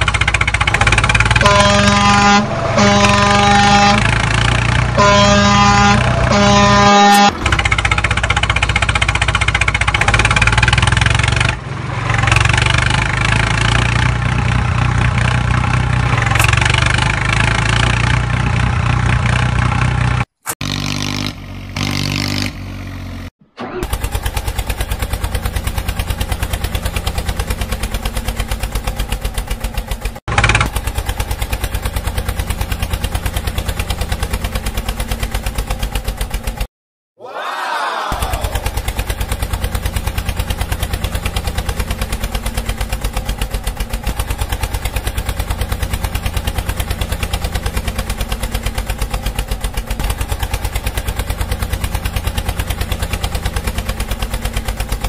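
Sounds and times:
tractor engine running: 0:00.0 - 0:36.7, 0:38.0 - 0:55.0
horn sounding: 0:01.2 - 0:07.4.

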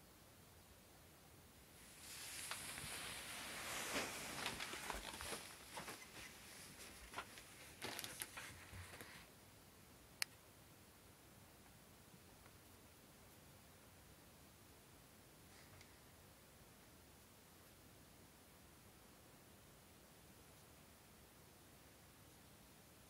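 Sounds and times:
hand moving objects: 0:01.8 - 0:09.3.

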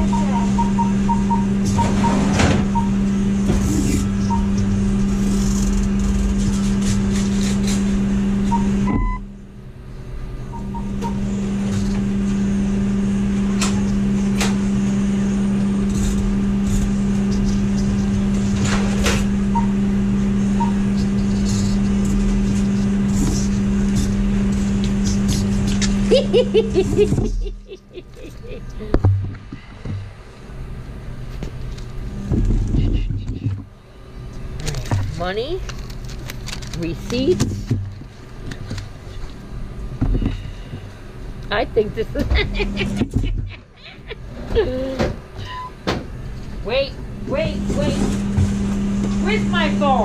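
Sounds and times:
short high beeps: 0:00.0 - 0:02.2
steady machine hum: 0:00.0 - 0:50.0.

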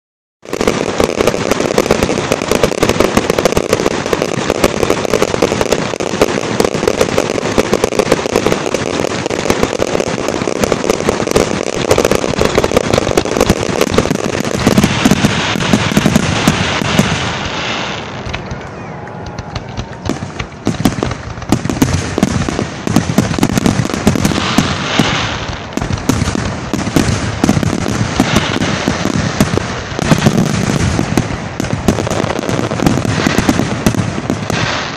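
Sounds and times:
fireworks bursts and crackling: 0:00.4 - 0:34.9.

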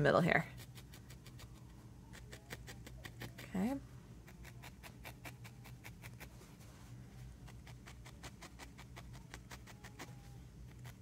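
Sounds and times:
felting needle poking wool: 0:02.2 - 0:06.4, 0:07.4 - 0:11.0.

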